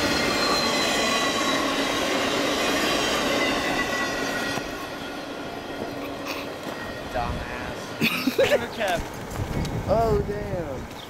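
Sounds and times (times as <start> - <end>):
steel wheels squealing: 0.0 - 8.0.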